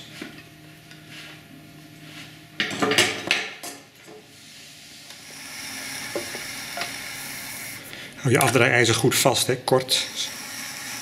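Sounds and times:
clay trimming scraping hiss: 4.5s - 8.0s.

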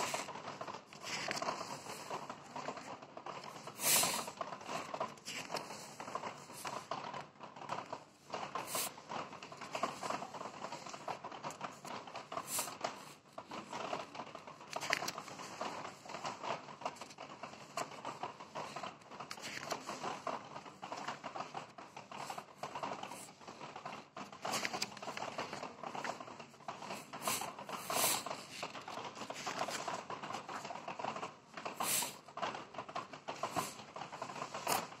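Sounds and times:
pages flipping: 0.0s - 2.8s, 14.6s - 16.2s, 18.6s - 20.3s, 24.2s - 26.2s
paper rustling: 0.0s - 7.2s, 8.5s - 31.0s.

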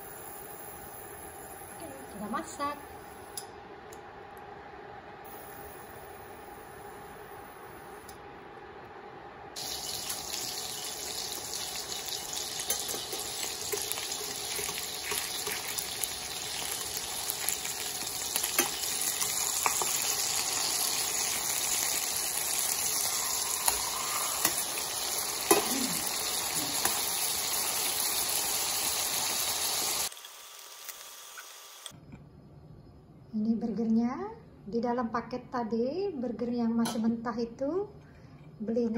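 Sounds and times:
burgers sizzling in hot oil: 0.0s - 2.4s, 9.6s - 31.9s.

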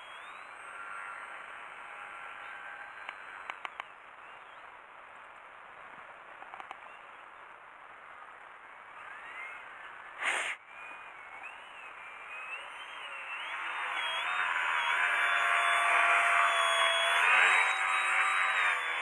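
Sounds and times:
model plane motor whine: 0.0s - 3.5s, 10.8s - 19.0s
light clicks: 6.1s - 7.4s
short loud rush of noise: 10.2s - 10.6s.

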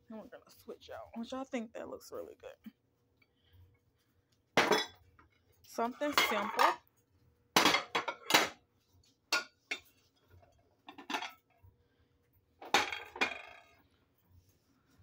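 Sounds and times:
ceramic plates clinking on glass: 4.6s - 5.0s, 6.1s - 6.8s.

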